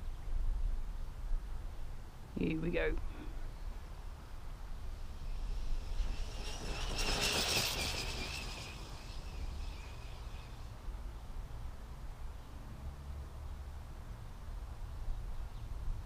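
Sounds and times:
wind rumble on microphone: 0:13.5 - 0:16.0.

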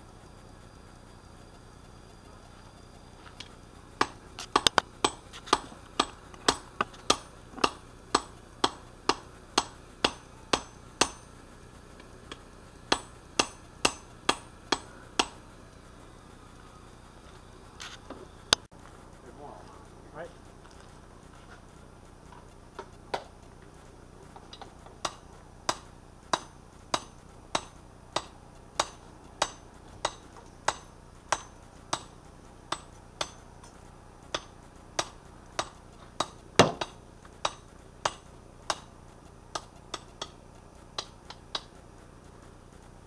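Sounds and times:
hammer striking metal on anvil: 0:04.0 - 0:11.4, 0:12.3 - 0:15.4, 0:24.6 - 0:38.9.

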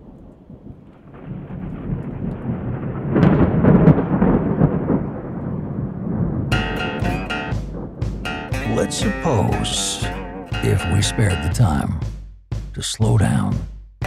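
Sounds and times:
rain: 0:00.0 - 0:10.0
rolling thunder: 0:00.0 - 0:11.6
acoustic guitar music: 0:06.5 - 0:12.1.

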